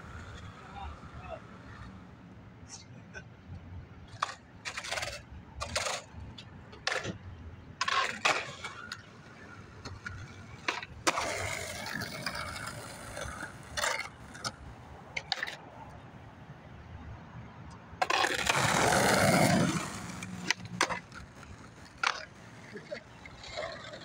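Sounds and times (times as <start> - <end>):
skateboard wheels rolling on pavement: 0.0 - 2.4, 3.5 - 24.0
skateboard clacks: 4.1 - 7.2, 7.8 - 15.6, 17.7 - 24.0.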